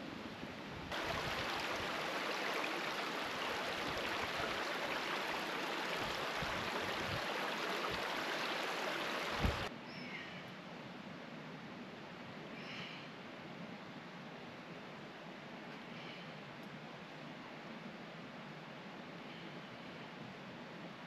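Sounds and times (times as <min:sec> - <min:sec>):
flowing stream: 0:00.3 - 0:09.7.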